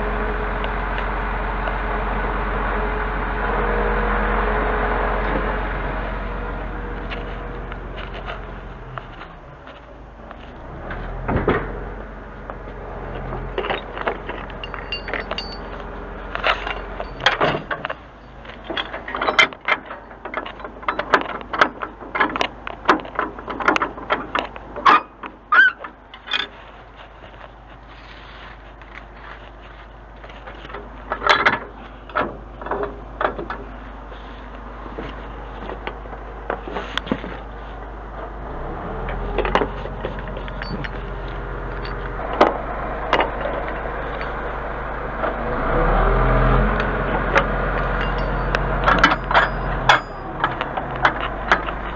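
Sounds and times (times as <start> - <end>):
truck engine idling: 0.0 - 51.9
chain rattling and metal clanking: 13.2 - 26.7, 39.1 - 42.4, 43.0 - 44.5, 47.7 - 51.9.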